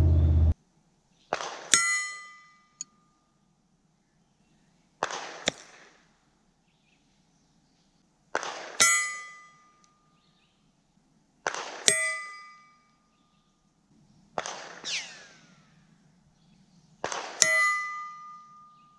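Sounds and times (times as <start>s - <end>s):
distant gunshot crack: 8.3s - 8.8s, 11.4s - 11.9s, 14.4s - 15.8s, 17.0s - 17.4s
falling ricochet whine: 14.4s - 15.8s.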